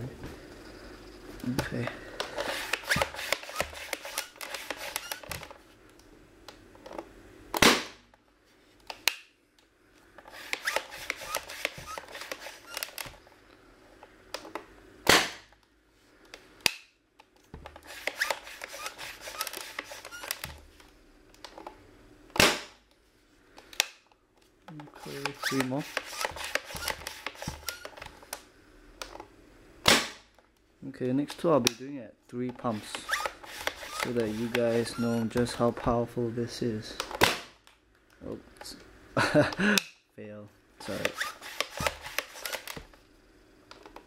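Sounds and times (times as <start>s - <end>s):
air blaster pumping: 2.2s - 5.5s, 10.2s - 13.2s, 17.7s - 20.4s, 25.0s - 28.0s, 32.8s - 35.2s, 40.9s - 42.8s.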